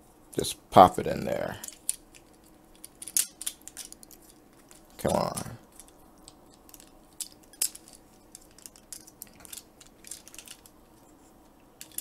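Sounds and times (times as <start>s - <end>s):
plastic toy parts clicking: 1.6s - 10.8s, 11.8s - 12.0s.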